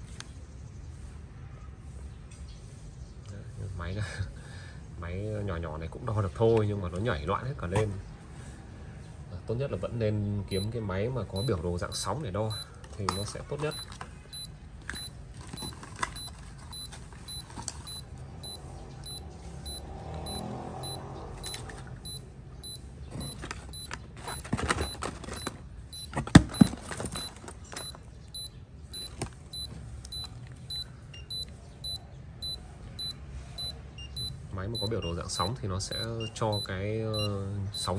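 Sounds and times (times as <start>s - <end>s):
pulse oximeter beeping: 11.4s - 37.9s.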